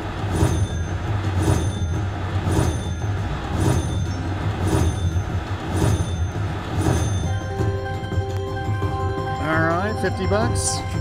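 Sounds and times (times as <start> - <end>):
sharp electronic beat: 0.0 - 11.0
steady low hum: 0.0 - 11.0
high electronic tones: 3.6 - 11.0.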